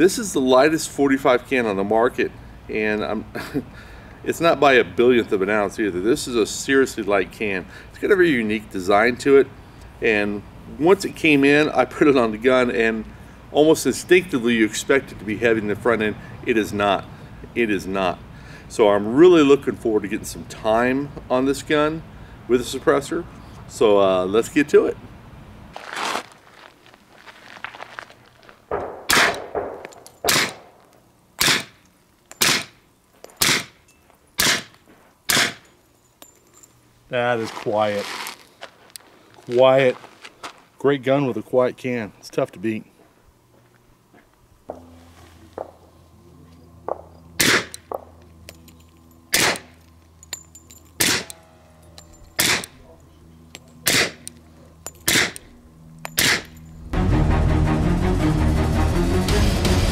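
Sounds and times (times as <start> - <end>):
suppressed pistol shots: 28.7 - 30.8, 31.4 - 31.8, 32.4 - 32.8, 33.4 - 33.8, 34.4 - 34.7, 35.3 - 35.6, 46.9 - 48.0, 49.3 - 49.8, 51.0 - 51.3, 52.4 - 52.8, 53.8 - 54.3, 55.1 - 55.5, 56.2 - 56.5.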